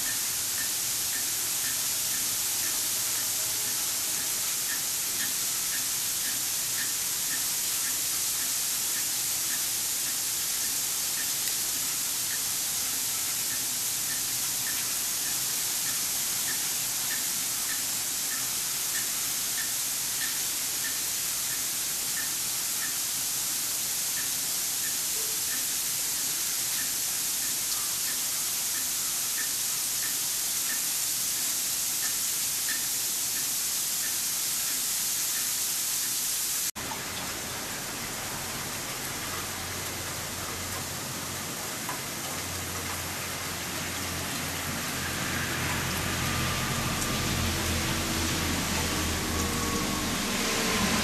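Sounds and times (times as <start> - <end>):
light ticking: 4.7 - 23.0, 24.2 - 36.2.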